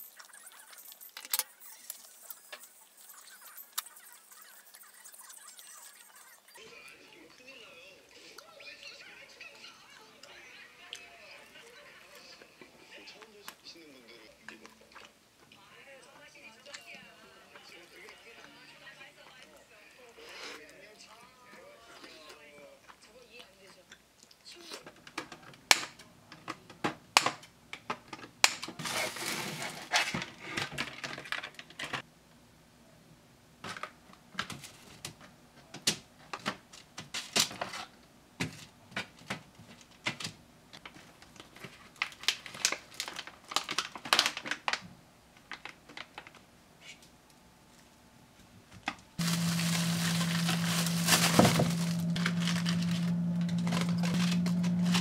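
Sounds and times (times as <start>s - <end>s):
packet rustling: 40.8s - 44.8s, 49.2s - 55.0s
plastic crinkling: 40.8s - 44.8s, 49.2s - 55.0s
low hum: 49.2s - 55.0s.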